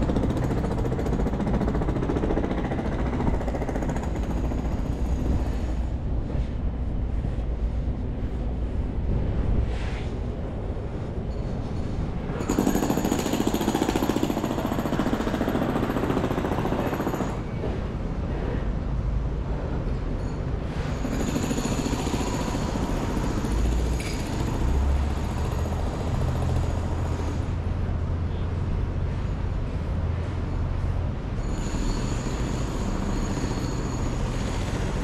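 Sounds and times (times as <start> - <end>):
jackhammer hammering: 0.0 - 5.6, 12.4 - 17.4
low city rumble: 0.0 - 35.0.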